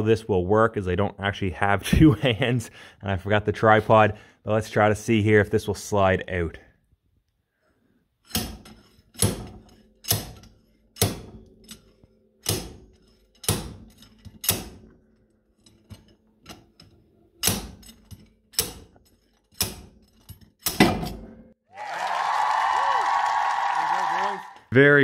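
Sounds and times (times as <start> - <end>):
slide hammer metallic clanks: 8.2 - 21.5.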